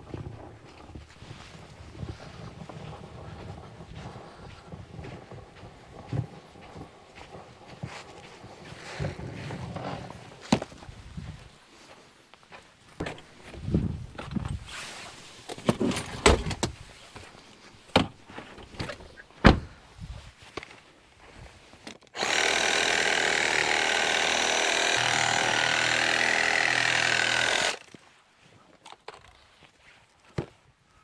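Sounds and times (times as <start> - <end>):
knocks and clunks: 15.5 - 16.8, 17.9 - 19.8
reciprocating saw cutting log: 22.2 - 27.9.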